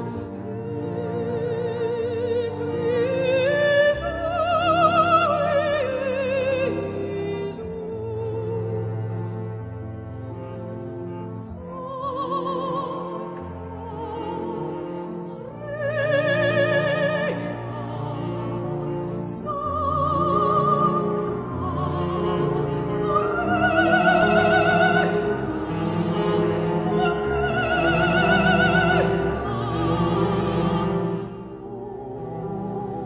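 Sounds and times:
orchestral accompaniment: 0.0s - 33.0s
operatic voice singing: 11.4s - 33.0s.

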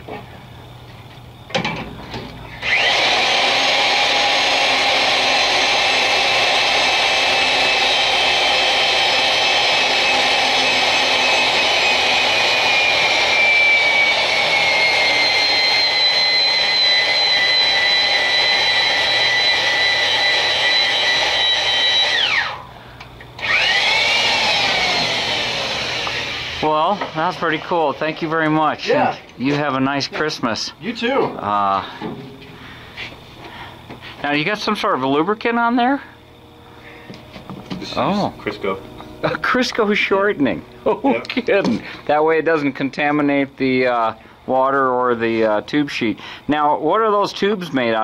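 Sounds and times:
electric drill motor whining: 2.6s - 22.7s, 23.4s - 27.9s.

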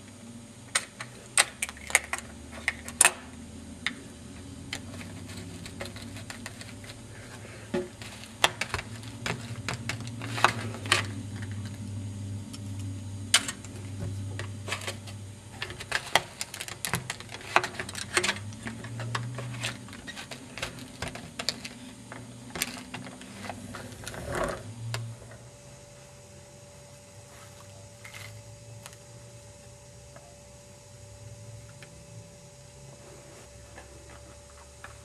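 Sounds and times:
steady low hum: 0.0s - 35.0s
plastic scrape: 22.6s - 24.6s.

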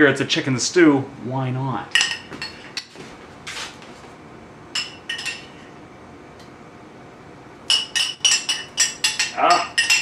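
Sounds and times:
metal spoon clinking on bowl and pot: 4.8s - 5.6s, 7.7s - 10.0s.

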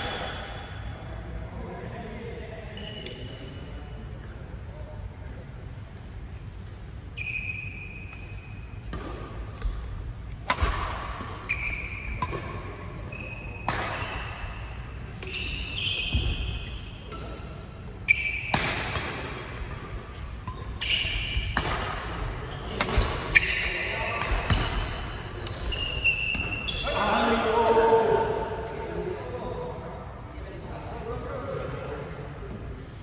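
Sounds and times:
shoes squeaking on floor: 2.7s - 3.5s, 7.1s - 8.9s, 11.4s - 18.6s, 20.1s - 24.9s, 25.5s - 27.2s
rackets striking shuttlecock: 8.1s - 14.6s, 18.2s - 26.6s.

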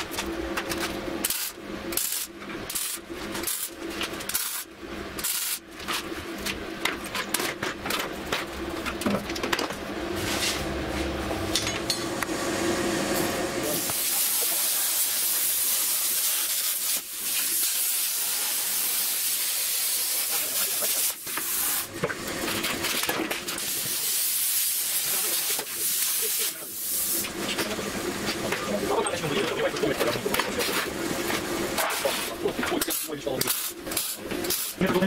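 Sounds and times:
plasma cutter arc hissing: 13.6s - 21.9s, 23.6s - 27.4s, 31.9s - 34.8s.

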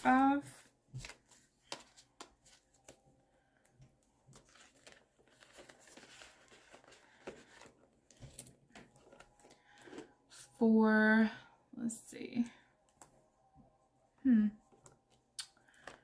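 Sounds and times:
paper and plastic rustling: 4.2s - 10.4s.

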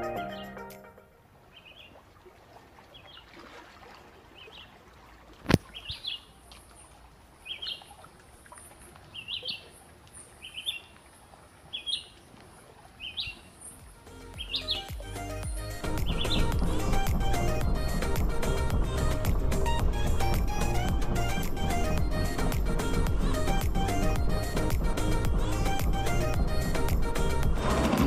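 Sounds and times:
songbird chirping: 1.4s - 2.0s, 5.5s - 18.6s.

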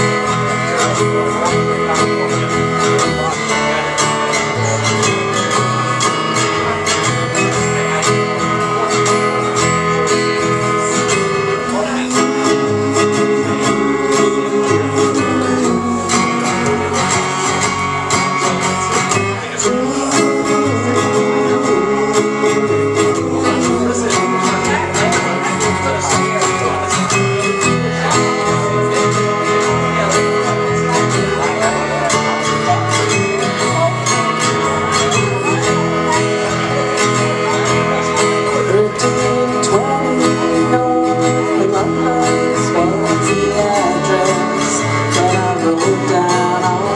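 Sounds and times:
acoustic guitar strumming: 0.0s - 46.9s
electric bass guitar: 0.0s - 46.9s
people singing: 0.0s - 46.9s.

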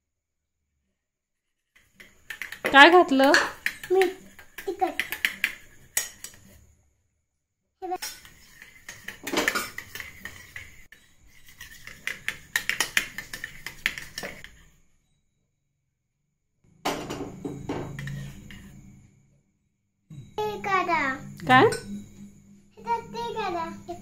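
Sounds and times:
metal spoon clinking against steel bowl: 2.0s - 6.5s, 8.0s - 14.6s.

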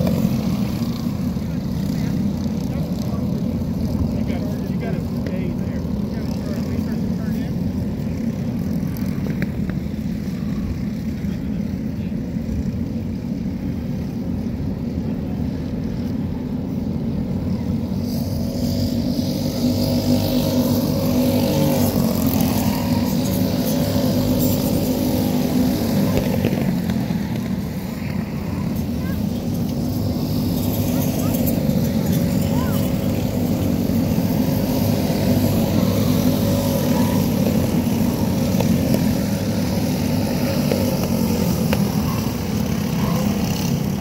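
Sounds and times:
kart engines passing: 0.0s - 44.0s.

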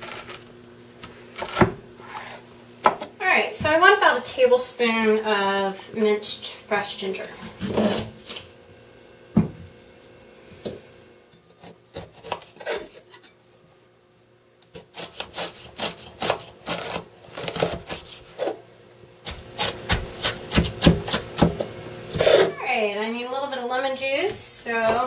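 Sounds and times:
knife chopping on wooden board: 19.2s - 22.4s.

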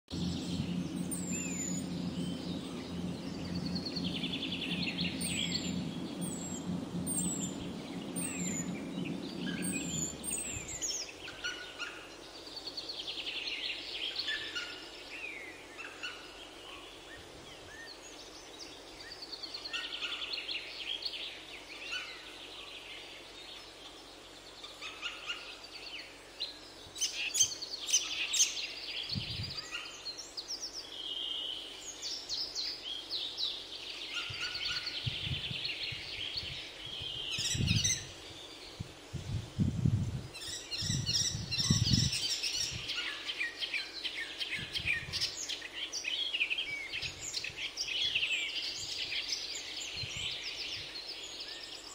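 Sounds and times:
low hum: 0.1s - 11.3s
many birds chirping: 0.1s - 39.1s, 40.3s - 51.9s.

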